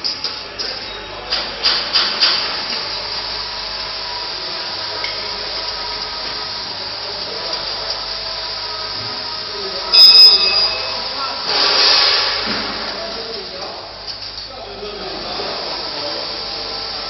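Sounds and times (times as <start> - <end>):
machine mechanical hiss: 1.6 - 13.1.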